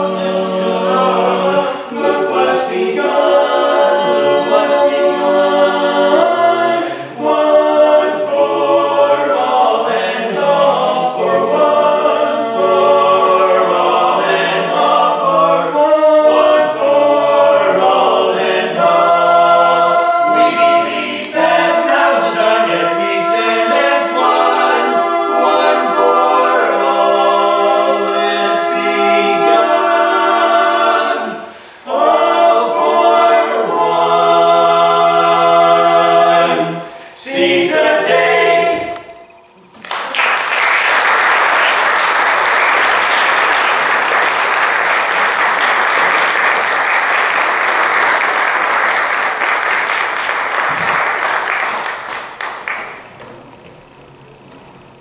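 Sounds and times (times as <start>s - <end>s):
male quartet singing a cappella: 0.0s - 39.6s
audience applause: 39.8s - 53.2s.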